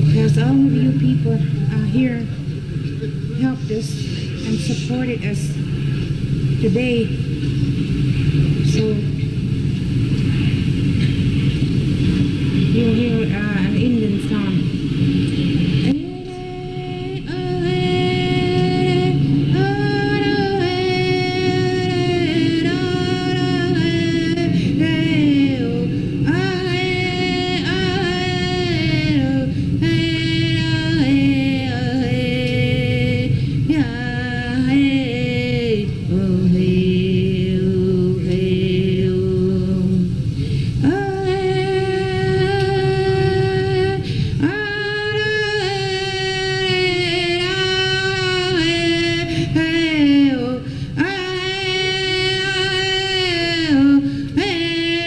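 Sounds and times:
woman singing high long notes: 15.9 - 40.0.

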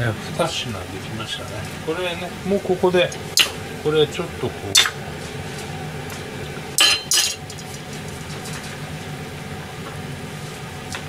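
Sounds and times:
steady low hum: 0.0 - 11.0
steel bowl clinking against metal: 6.8 - 8.8.

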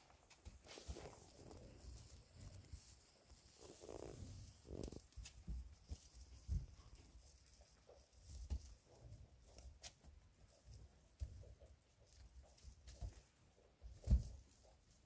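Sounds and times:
rustling in straw: 0.0 - 10.8.

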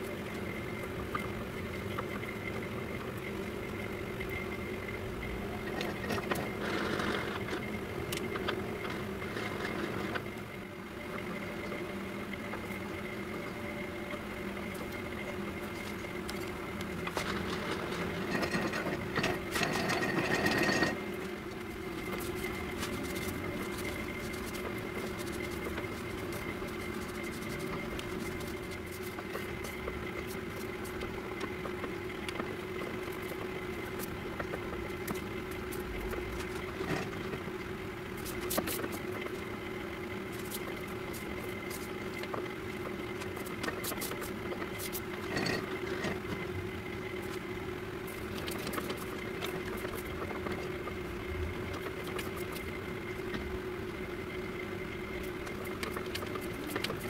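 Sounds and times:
metal lathe humming: 13.6 - 37.9.

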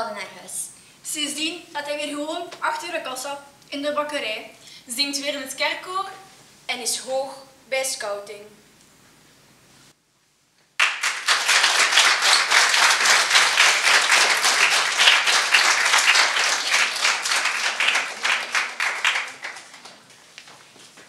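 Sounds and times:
audience applauding: 10.8 - 20.2.

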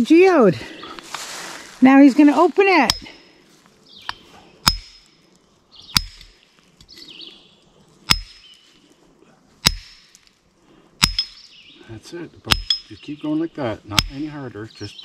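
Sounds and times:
hammer clinking on chisel: 4.1 - 5.1, 8.1 - 8.4, 11.0 - 11.4, 12.5 - 13.0, 13.9 - 14.3.

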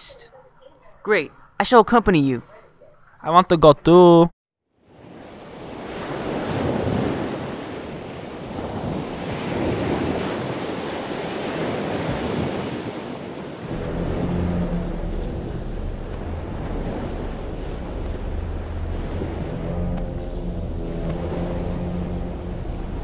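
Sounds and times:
wind: 0.0 - 23.0
ocean waves: 4.8 - 23.0
low steady hum: 13.6 - 23.0.

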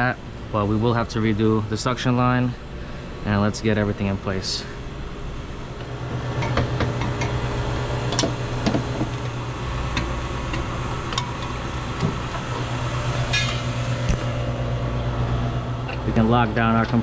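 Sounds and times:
low machinery hum: 0.0 - 17.0
metal clinks and knocks: 13.3 - 13.8.

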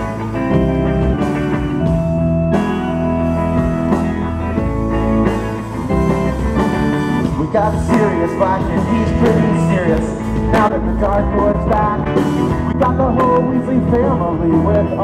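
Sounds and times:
drum kit: 0.0 - 15.0
electric guitar: 0.0 - 15.0
keyboard: 0.0 - 15.0.

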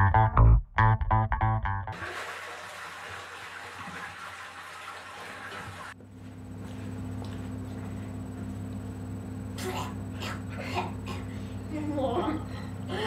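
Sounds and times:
guitar and bass music: 0.0 - 2.0.

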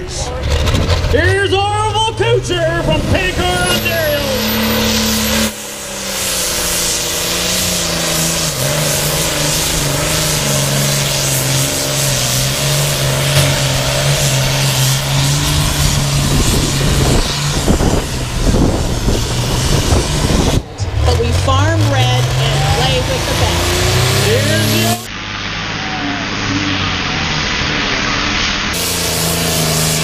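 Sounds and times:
tractor diesel engine straining: 0.0 - 25.3
wind rumble on microphone: 13.4 - 21.0.

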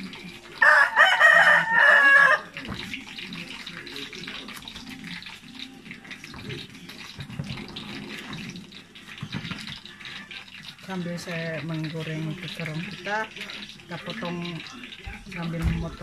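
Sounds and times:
food frying in hot oil: 0.0 - 16.0
rooster crowing: 0.6 - 2.5.

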